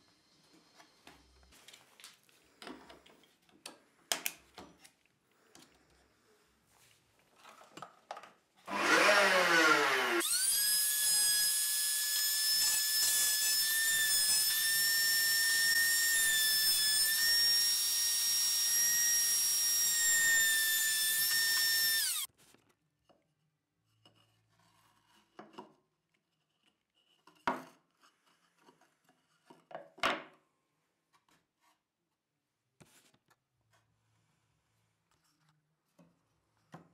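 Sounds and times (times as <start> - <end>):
wood router motor whining: 8.7 - 22.3.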